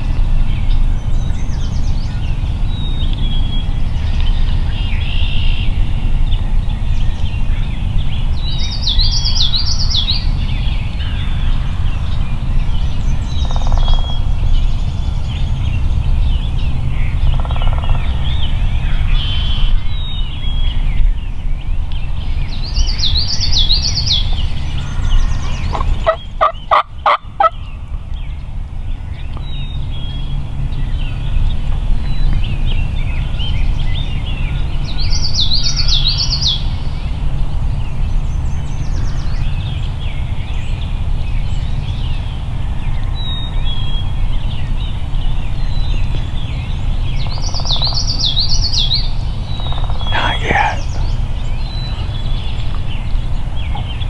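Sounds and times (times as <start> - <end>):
turkey gobbling: 25.7 - 27.5
turkey yelping calls: 25.7 - 27.5.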